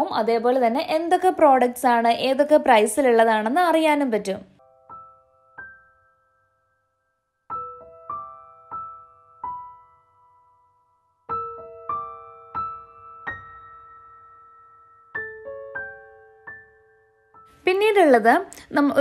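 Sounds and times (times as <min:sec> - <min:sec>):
soft piano notes: 0:04.6 - 0:19.0.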